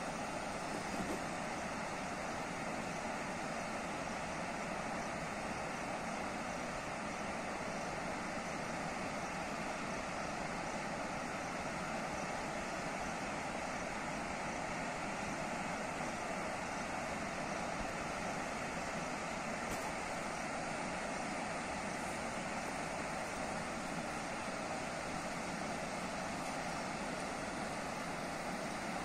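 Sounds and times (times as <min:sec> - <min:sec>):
white-water rapids: 0:00.0 - 0:29.0.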